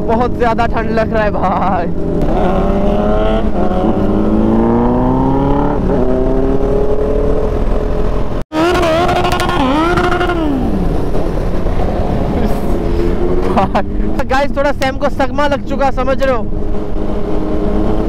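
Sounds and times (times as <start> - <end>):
motorcycle engine accelerating: 1.5 - 14.2
wind rush: 1.9 - 14.5.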